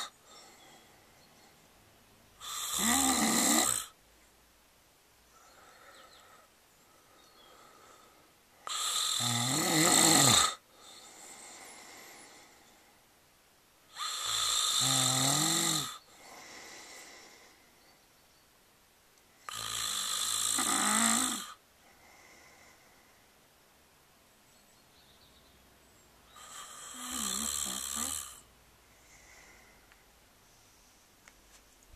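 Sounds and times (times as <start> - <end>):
man snoring: 0.0 - 0.6, 2.4 - 4.0, 8.6 - 12.6, 13.9 - 17.5, 19.4 - 22.7, 26.4 - 28.5
soft breaths: 0.0 - 2.7, 5.2 - 9.0, 10.5 - 13.2, 15.9 - 18.1, 21.3 - 23.6, 26.2 - 31.9.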